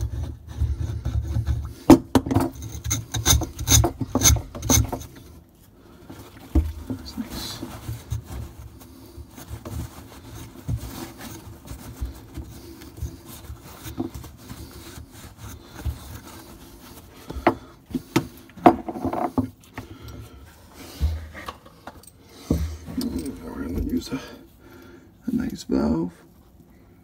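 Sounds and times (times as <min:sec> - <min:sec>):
paper towel rubbing pipe: 0:07.0 - 0:18.4.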